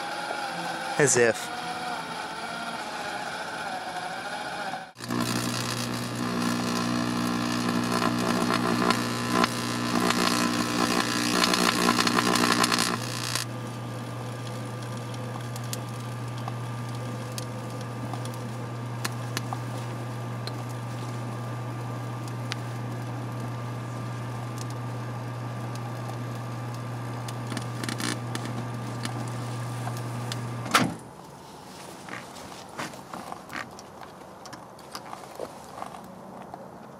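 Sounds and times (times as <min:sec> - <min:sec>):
microwave oven humming: 0:01.6 - 0:30.7
crackling buzz of arcing: 0:05.0 - 0:30.7.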